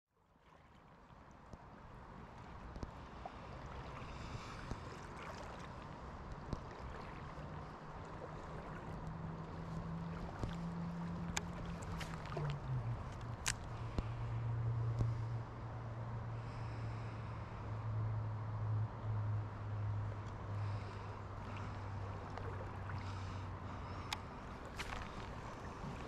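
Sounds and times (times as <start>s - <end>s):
low steady hum: 0.2s - 26.0s
river water flowing: 0.2s - 26.0s
small splashes: 0.4s - 14.2s, 20.6s - 26.0s.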